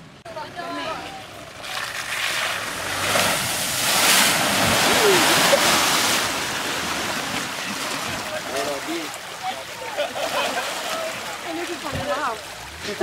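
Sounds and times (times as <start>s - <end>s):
water surging and splashing: 0.0s - 13.0s.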